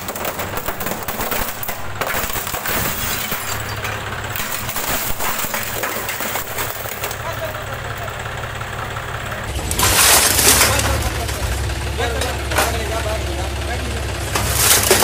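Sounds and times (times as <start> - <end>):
plastic cracking and splintering: 0.0 - 3.4, 9.6 - 11.1, 14.4 - 15.0
tractor engine humming: 0.0 - 15.0.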